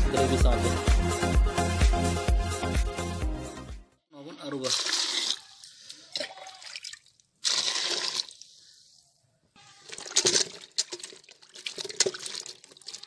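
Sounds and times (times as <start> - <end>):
hand stirring wet pieces: 4.5 - 9.0, 9.8 - 13.0
water pouring into a pot: 4.6 - 8.6, 9.8 - 13.0.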